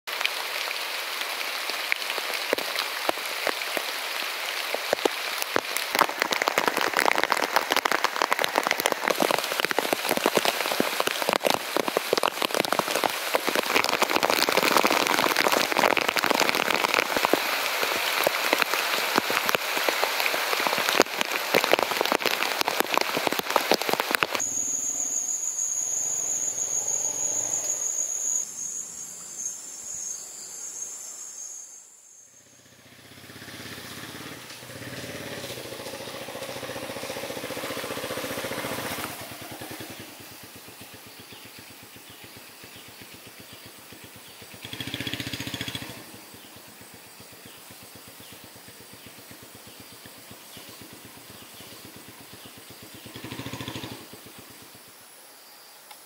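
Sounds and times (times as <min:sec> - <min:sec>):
heavy rain falling: 0:00.1 - 0:27.9, 0:33.1 - 0:42.0.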